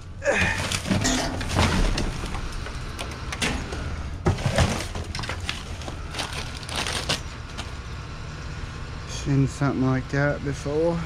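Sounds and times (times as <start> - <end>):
rustling and crinkling packaging: 4.3 - 7.8.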